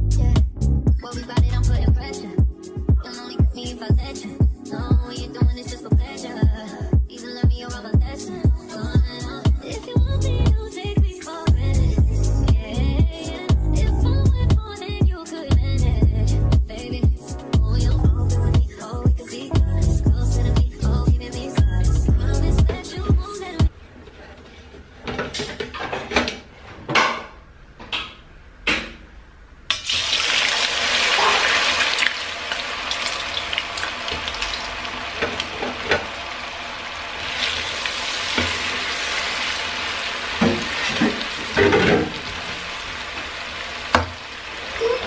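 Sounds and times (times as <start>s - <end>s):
oil sizzling: 29.7s - 45.0s.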